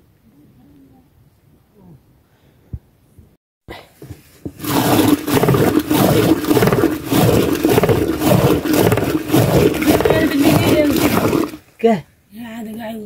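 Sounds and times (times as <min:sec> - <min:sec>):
churning stick sloshing buttermilk: 0:04.0 - 0:11.8.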